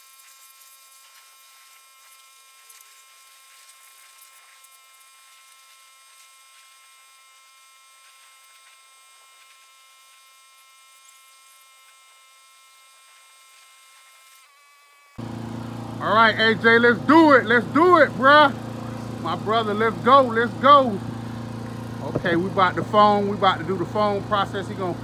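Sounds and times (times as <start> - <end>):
pressure washer spraying: 0.0 - 12.0, 15.2 - 25.0
steady hum: 15.2 - 25.0.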